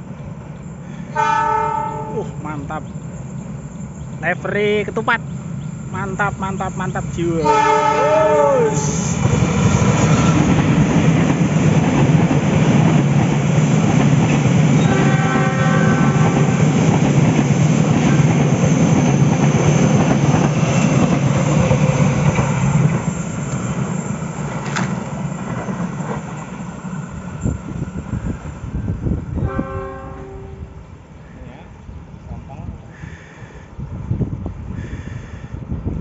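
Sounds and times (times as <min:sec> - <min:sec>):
train rumbling past on rails: 0:00.0 - 0:36.0.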